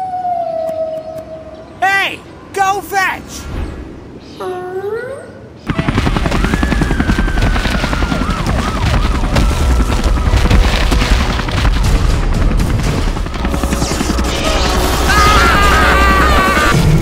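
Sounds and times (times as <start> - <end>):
booming explosions: 5.7 - 17.0
rapid gunfire: 5.7 - 17.0
dramatic music: 8.4 - 17.0
man screaming: 15.0 - 16.8.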